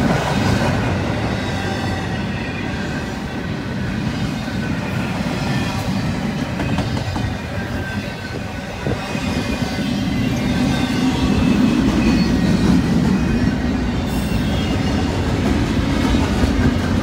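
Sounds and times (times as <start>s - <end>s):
freight train wheels rumbling on rails: 0.0s - 17.0s.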